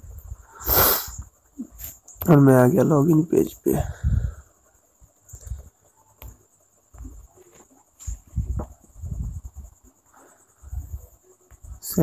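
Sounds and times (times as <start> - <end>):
crickets chirring: 0.0 - 12.0
soft muffled thuds: 6.9 - 9.7.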